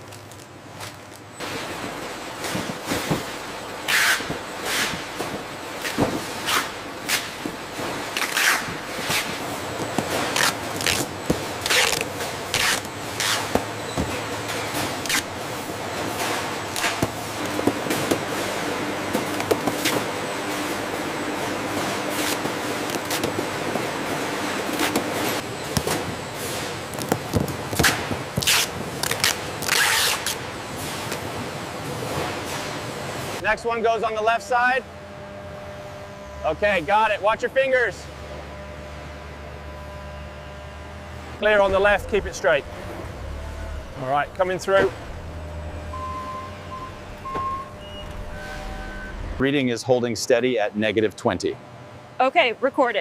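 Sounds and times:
faint machine hum: 0:00.0 - 0:53.0
packing tape ripping: 0:08.2 - 0:09.3, 0:10.0 - 0:13.5, 0:26.9 - 0:30.4.

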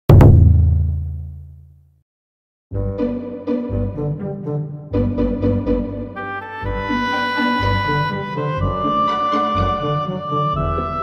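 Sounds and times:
deep drum-like boom: 0:00.1 - 0:01.4.

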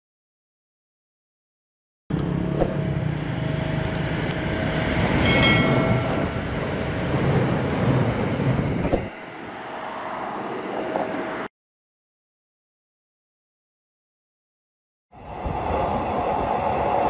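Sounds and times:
electric train rumbling on rails: 0:02.1 - 0:11.5, 0:15.1 - 0:17.0
sharp clicks of train wheels: 0:03.8 - 0:06.2.

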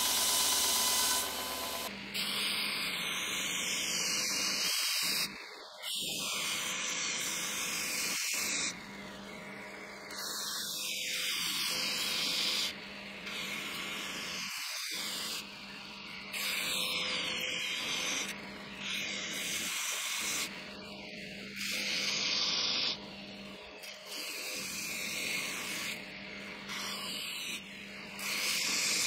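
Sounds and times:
belt grinder humming: 0:00.0 - 0:01.9
wood hissing on sanding belt: 0:00.0 - 0:05.2, 0:10.2 - 0:15.6, 0:16.4 - 0:20.5, 0:28.2 - 0:29.0.

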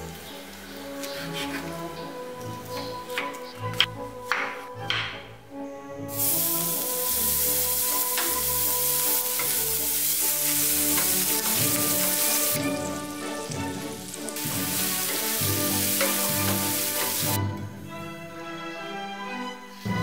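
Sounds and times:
wooden spatula scraping: 0:00.8 - 0:02.8
food sizzling in frying pan: 0:06.1 - 0:17.4.

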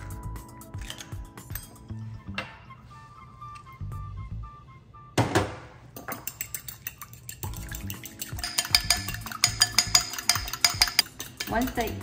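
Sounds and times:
fork clicking against glass bowl: 0:06.0 - 0:12.0.

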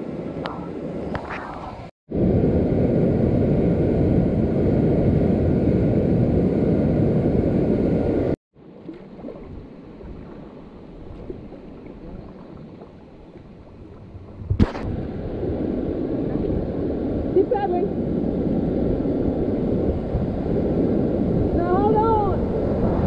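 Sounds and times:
calm river water washing: 0:08.1 - 0:23.0.

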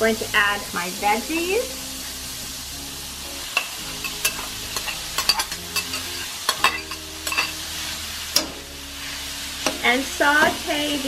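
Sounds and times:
sausage sizzling in a skillet: 0:00.0 - 0:11.0
metal spatula scraping bowl and pan: 0:03.6 - 0:08.6.

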